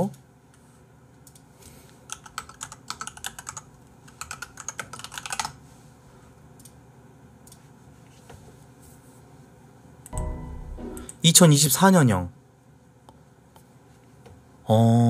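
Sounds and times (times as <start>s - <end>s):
typing on computer keyboard: 2.1s - 5.6s.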